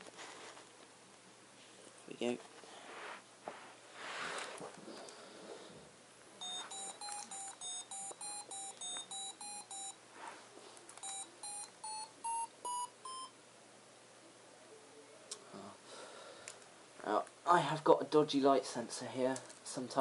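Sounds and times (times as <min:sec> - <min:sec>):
robot being handled rustle: 0:00.0 - 0:00.8
short electronic beeps: 0:06.4 - 0:10.0, 0:11.0 - 0:13.3.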